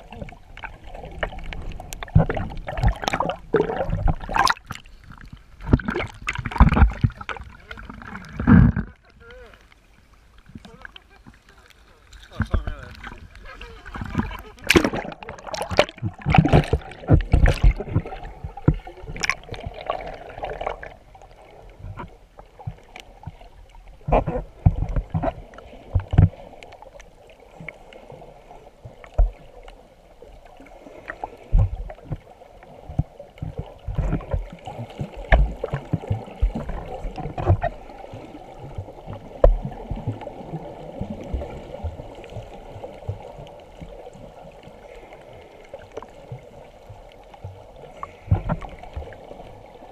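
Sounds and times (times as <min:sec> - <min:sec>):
low underwater thumps: 0:00.0 - 0:09.0, 0:12.2 - 0:21.1, 0:21.7 - 0:26.4, 0:28.9 - 0:29.4, 0:31.5 - 0:43.5, 0:46.3 - 0:49.2
muffled underwater sloshing: 0:00.0 - 0:49.9
water splashes: 0:00.0 - 0:49.9.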